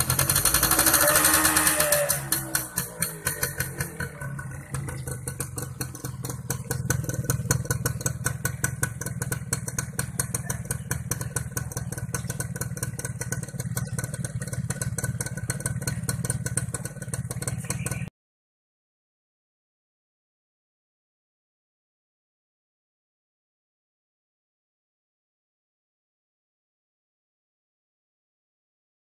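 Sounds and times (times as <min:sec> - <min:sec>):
motorcycle engine idling: 0:00.0 - 0:18.1.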